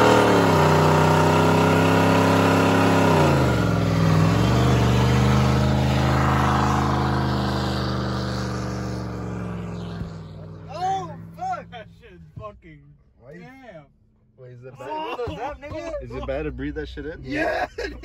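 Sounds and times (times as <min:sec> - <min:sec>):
truck engine at high revs: 0:00.0 - 0:12.4.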